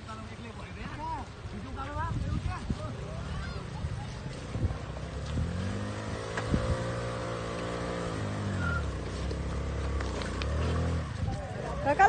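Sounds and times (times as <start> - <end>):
scooter engine revving: 4.6 - 11.3.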